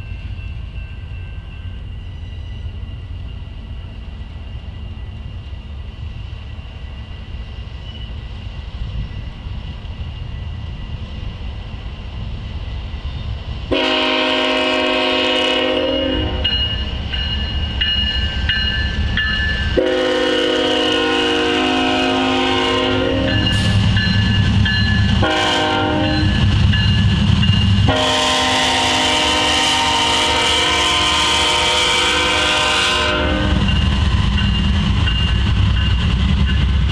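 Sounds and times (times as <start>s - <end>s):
locomotive air horn blasts: 13.7s - 16.5s, 19.8s - 23.5s, 25.2s - 26.4s, 27.8s - 33.7s.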